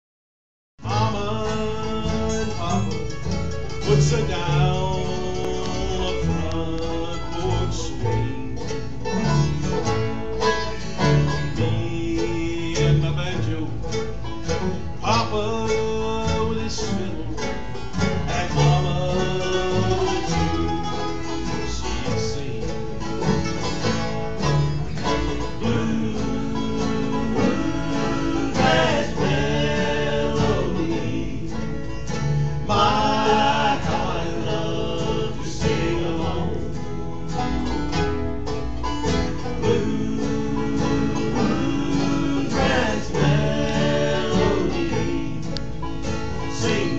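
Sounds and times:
person singing: 0:00.8 - 0:03.1, 0:03.8 - 0:09.8, 0:11.3 - 0:13.9, 0:15.0 - 0:23.0, 0:25.3 - 0:32.0, 0:32.6 - 0:37.0, 0:39.4 - 0:45.7
bluegrass band playing: 0:00.8 - 0:46.9.

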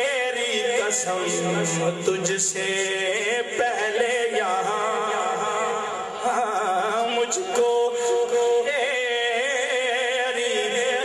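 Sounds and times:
man singing unaccompanied: 0:00.0 - 0:11.0.

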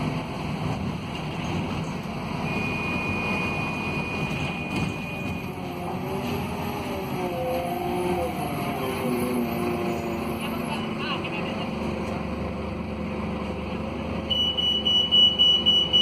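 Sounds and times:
bus diesel engine under load: 0:00.0 - 0:16.0
road noise: 0:00.0 - 0:16.0.

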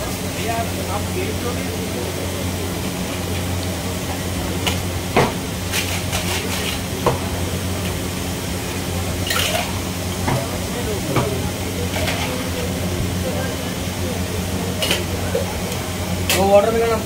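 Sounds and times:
steady hum and hiss: 0:00.0 - 0:17.0.

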